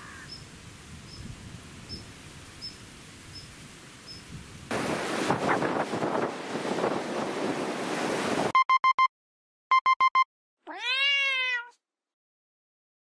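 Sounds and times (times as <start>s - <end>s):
wind: 0.0s - 8.5s
waves: 4.1s - 8.5s
alarm clock beeping: 9.7s - 10.2s
cat meow: 10.6s - 11.8s.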